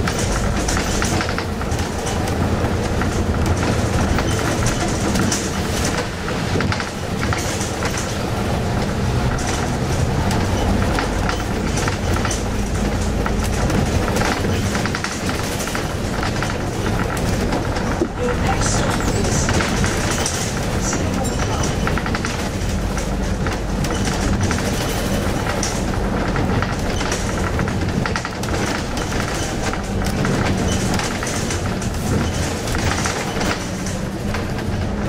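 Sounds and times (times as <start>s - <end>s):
bus diesel engine running: 0.0s - 35.0s
road noise: 0.0s - 35.0s
clicks and rattles: 9.3s - 34.9s.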